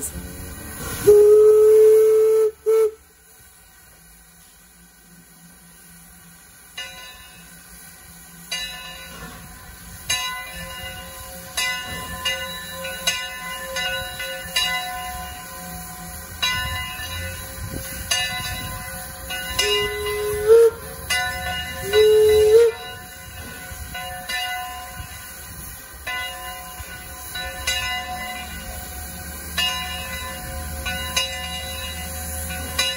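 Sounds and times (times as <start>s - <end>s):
steam whistle toot: 0.9s - 3.2s, 19.0s - 21.2s, 21.8s - 23.2s
locomotive bell ringing: 6.6s - 32.9s.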